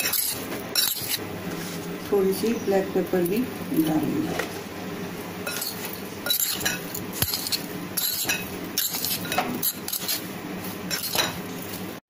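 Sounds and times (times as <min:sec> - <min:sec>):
clinks and scrapes against bowl: 0:00.0 - 0:01.2, 0:05.4 - 0:10.2, 0:10.9 - 0:11.4.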